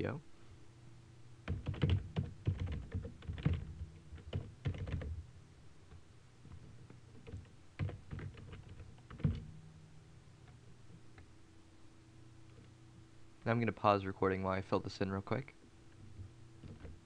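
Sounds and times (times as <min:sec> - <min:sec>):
typing on computer keyboard: 0:01.4 - 0:05.2, 0:06.5 - 0:09.4, 0:16.6 - 0:17.0.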